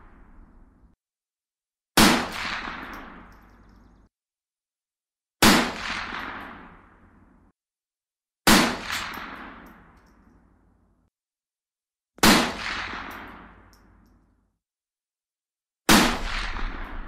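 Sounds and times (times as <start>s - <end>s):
gunshots echoing: 2.0s - 4.0s, 5.4s - 7.1s, 8.5s - 10.0s, 12.2s - 14.0s, 15.9s - 17.0s.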